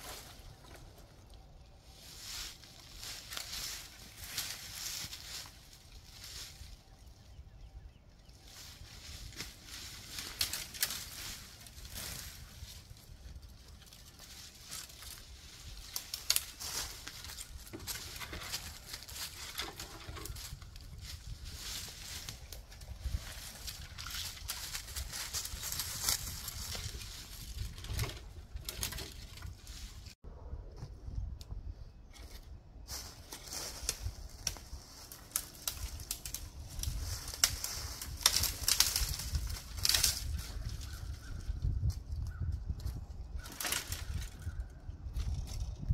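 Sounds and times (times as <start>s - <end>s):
leaves crunching underfoot: 0.0s - 7.1s, 8.3s - 30.2s, 32.8s - 42.3s
branches crackling and scraping: 0.0s - 30.2s, 31.9s - 45.9s.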